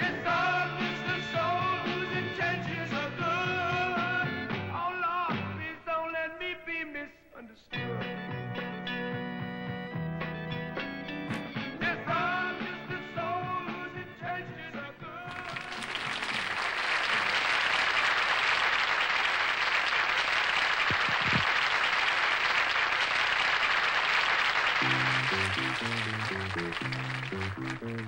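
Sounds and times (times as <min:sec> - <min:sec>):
rock band playing: 0:08.0 - 0:14.1, 0:24.8 - 0:28.0
audience applause: 0:15.3 - 0:28.0.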